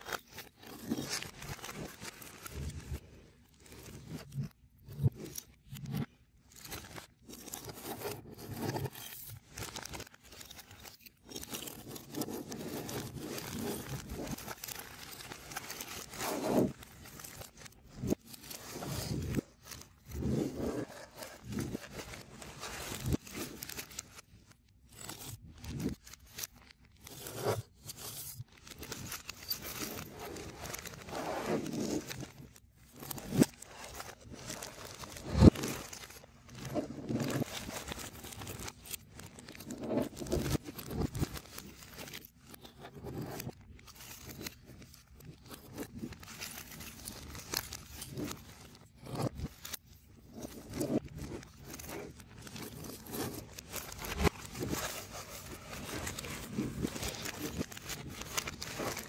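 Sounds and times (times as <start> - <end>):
plastic bag crinkling: 43.6 - 59.0.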